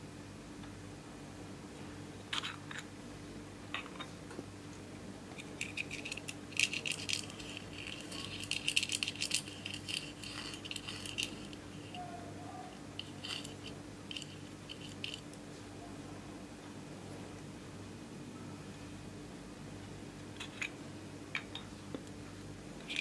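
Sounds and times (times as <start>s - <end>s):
steady low hum: 0.0s - 23.0s
tool scraping eyeshadow: 5.5s - 12.0s, 13.0s - 15.2s.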